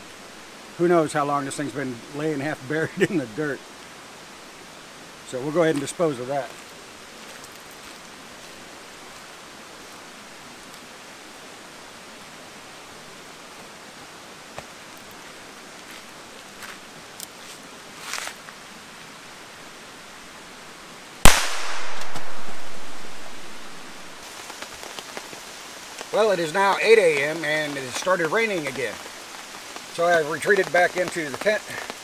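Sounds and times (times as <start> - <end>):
can bursting bang: 21.3 - 23.5.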